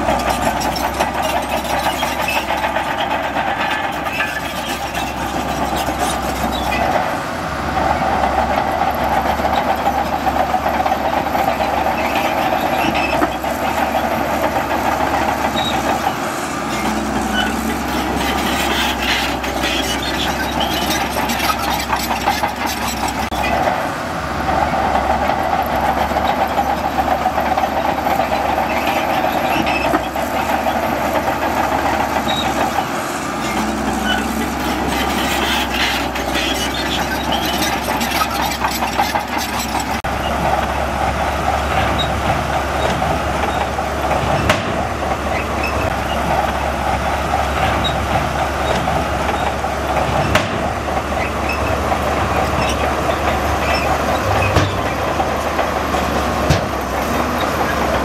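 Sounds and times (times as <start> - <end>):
bulldozer clanking: 0.0 - 58.0
bulldozer diesel engine running: 0.0 - 58.0.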